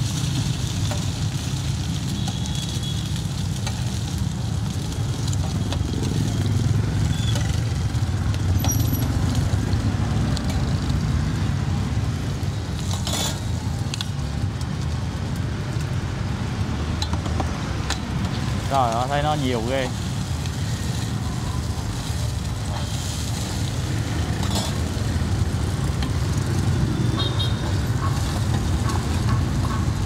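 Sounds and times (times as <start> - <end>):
street traffic rumble: 0.0 - 30.0
metal spatula scraping griddle: 12.8 - 13.6, 24.3 - 24.9.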